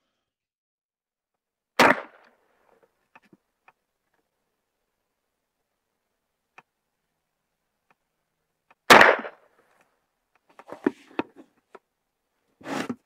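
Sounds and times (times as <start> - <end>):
gunshot with echo: 1.8 - 2.3, 8.9 - 9.4.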